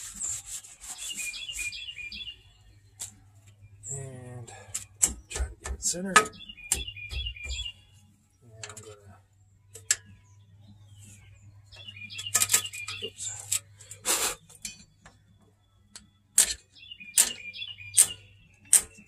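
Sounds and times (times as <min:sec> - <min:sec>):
birds chirping: 0:00.0 - 0:19.0
metal tools clinking: 0:14.6 - 0:14.9.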